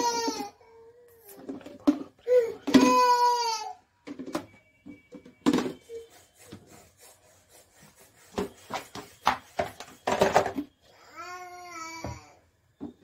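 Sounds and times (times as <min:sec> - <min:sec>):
plastic bottles knocking and clicking: 0:01.2 - 0:03.3, 0:04.0 - 0:05.9, 0:08.4 - 0:10.8.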